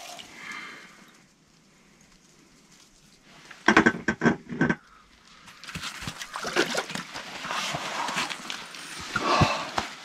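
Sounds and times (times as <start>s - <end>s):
rustling and shuffling movement: 6.9s - 10.0s.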